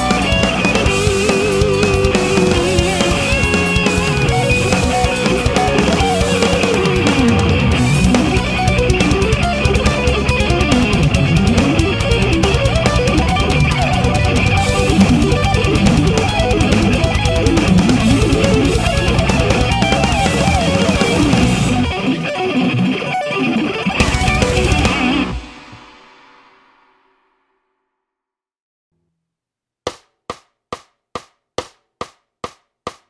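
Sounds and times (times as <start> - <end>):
electric guitar arpeggios: 0.0 - 25.8.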